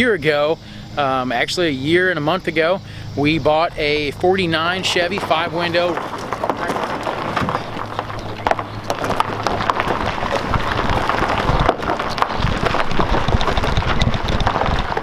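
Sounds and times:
gravel crunching under tyres: 0.0s - 15.0s
footsteps scuffing on gravel: 4.5s - 13.9s.

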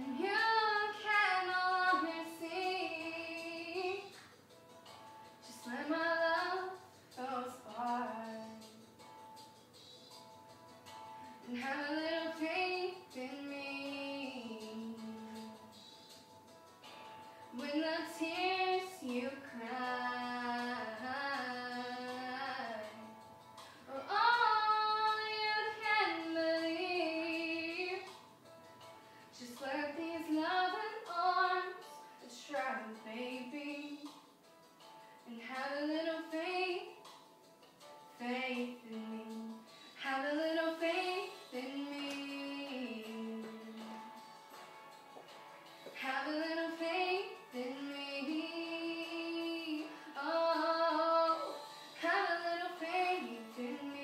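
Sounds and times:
girl singing: 0.0s - 4.2s, 5.5s - 8.8s, 11.4s - 15.9s, 17.6s - 23.1s, 23.9s - 28.1s, 29.4s - 34.2s, 35.3s - 37.0s, 38.2s - 44.0s, 46.0s - 54.0s.

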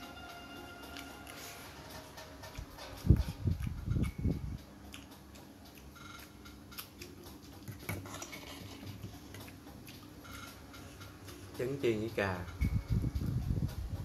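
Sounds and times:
person chewing food: 0.8s - 11.5s.

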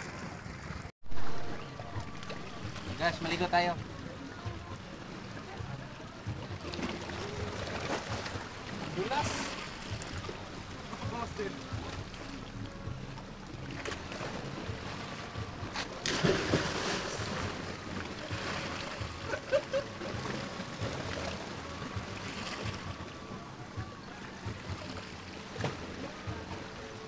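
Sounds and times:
swimming splashes: 0.0s - 27.0s
waves washing against rocks: 2.2s - 27.0s
person plunging into water: 15.7s - 17.7s.

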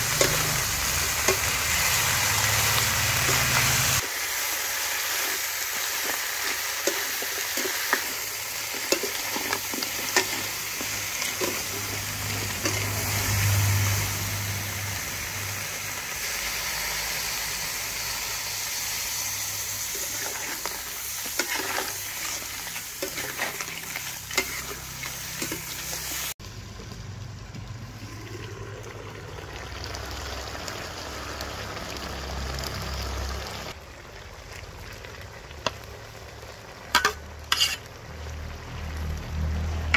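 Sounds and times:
crabs sizzling in a wok: 0.0s - 39.9s
metal spatula scraping pan: 5.1s - 13.8s, 19.8s - 26.3s, 37.0s - 37.9s.

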